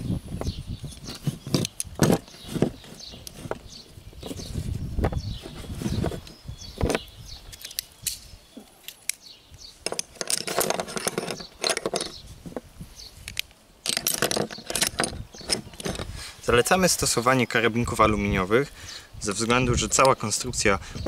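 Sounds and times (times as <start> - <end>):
carabiners and pulleys clinking: 9.8 - 12.2, 13.3 - 16.2.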